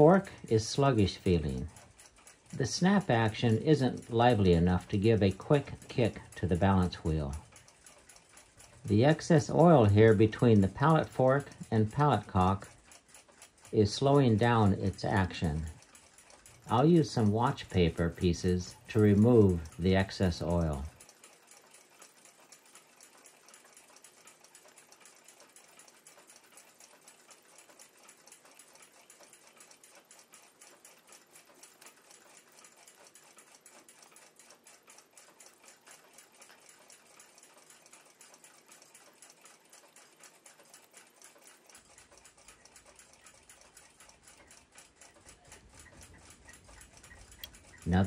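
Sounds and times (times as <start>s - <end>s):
clockwork ticking: 0.0s - 48.0s.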